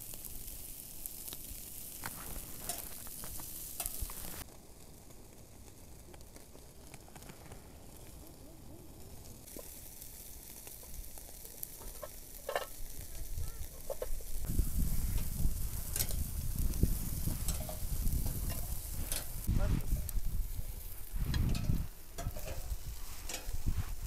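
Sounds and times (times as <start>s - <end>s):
chicken sizzling on grill: 0.0s - 24.0s
metal tongs scraping grate: 2.1s - 3.1s, 3.8s - 4.1s, 11.8s - 12.8s, 15.1s - 16.3s, 17.3s - 19.4s, 21.3s - 23.7s
low rumble: 14.5s - 22.0s.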